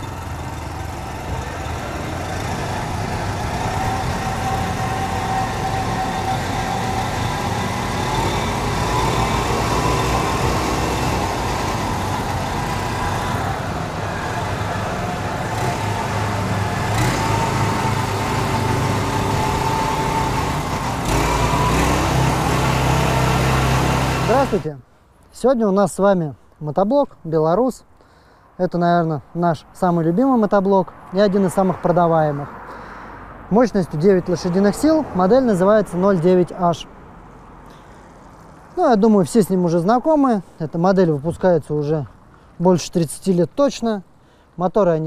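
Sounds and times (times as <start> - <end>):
walk-behind tractor engine running: 0.0 - 24.6.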